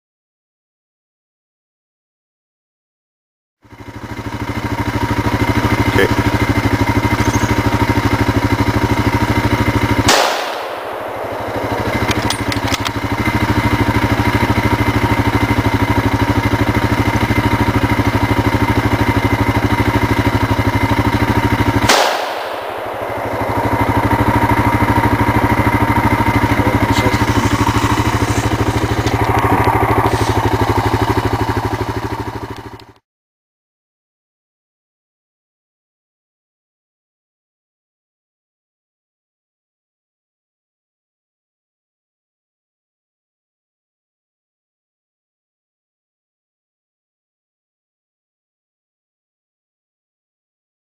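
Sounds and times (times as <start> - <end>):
engine idling: 3.6 - 33.0
rifle shot crack: 9.9 - 13.6, 21.8 - 30.6.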